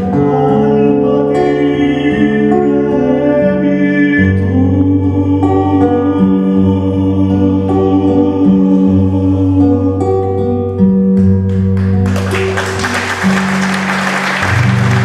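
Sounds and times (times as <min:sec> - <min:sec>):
live music held notes: 0:00.0 - 0:15.0
audience applause: 0:11.8 - 0:15.0.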